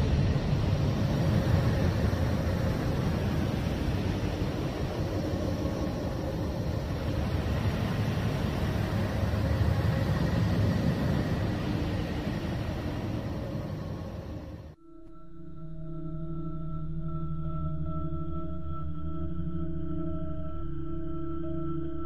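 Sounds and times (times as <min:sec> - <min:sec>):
faint held tones: 0:14.7 - 0:22.0.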